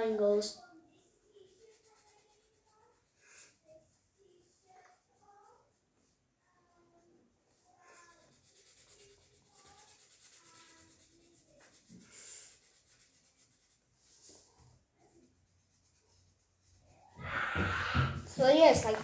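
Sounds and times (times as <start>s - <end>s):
marker pen scratching on paper: 1.4s - 5.1s, 7.5s - 17.1s.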